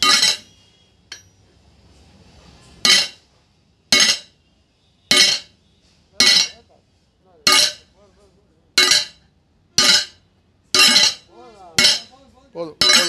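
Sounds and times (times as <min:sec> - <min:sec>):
hammer striking metal: 0:00.0 - 0:00.5, 0:02.8 - 0:03.2, 0:03.9 - 0:04.3, 0:05.1 - 0:05.5, 0:06.2 - 0:06.6, 0:07.4 - 0:07.9, 0:08.8 - 0:09.2, 0:09.8 - 0:10.2, 0:10.8 - 0:12.1, 0:12.8 - 0:13.0.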